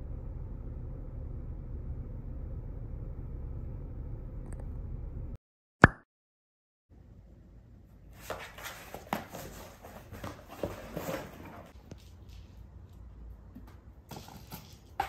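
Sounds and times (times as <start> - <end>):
kitten scratching cardboard box: 8.2 - 12.4.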